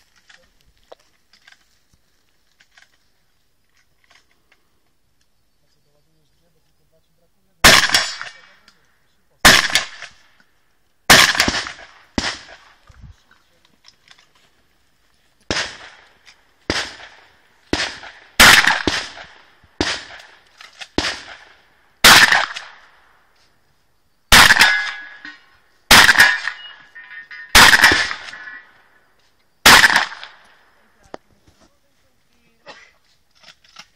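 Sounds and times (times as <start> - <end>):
shotgun shots echoing: 7.6 - 8.8, 9.4 - 10.4, 11.1 - 12.8, 15.5 - 23.1, 24.3 - 28.8, 29.6 - 30.7
metallic ring: 26.3 - 27.6.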